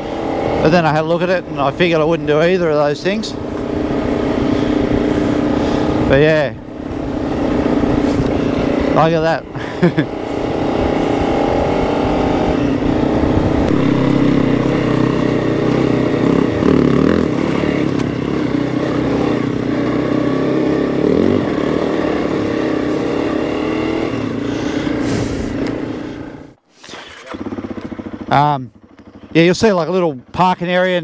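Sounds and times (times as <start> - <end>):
motorcycle engine running: 0.0 - 26.6, 27.2 - 31.0.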